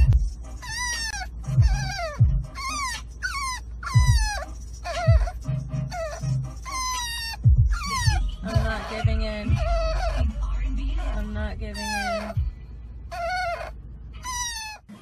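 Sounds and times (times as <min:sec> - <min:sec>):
animal whining cries: 0:00.0 - 0:12.5, 0:13.1 - 0:15.0
music: 0:00.0 - 0:12.8
low thumps: 0:01.5 - 0:02.6, 0:07.4 - 0:10.5.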